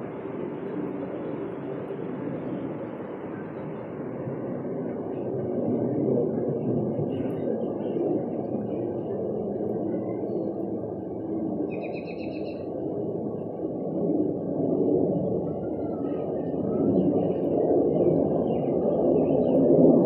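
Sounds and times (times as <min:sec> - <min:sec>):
faint bird chirps: 0:11.7 - 0:12.7
rapid bird chirping trill: 0:11.7 - 0:12.7.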